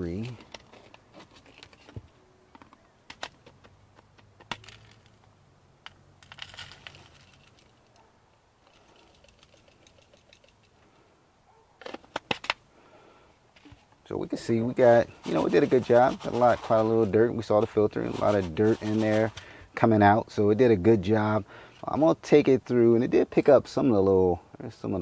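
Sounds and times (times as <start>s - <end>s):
debris rustling onto paper plate: 6.2s - 7.9s.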